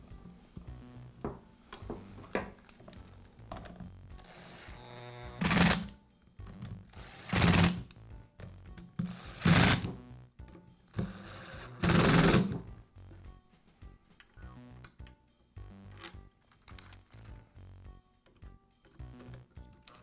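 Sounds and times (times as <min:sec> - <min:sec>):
faint background music: 0:00.0 - 0:20.0
impact driver driving screws: 0:07.0 - 0:07.8, 0:09.0 - 0:09.9, 0:11.0 - 0:12.6.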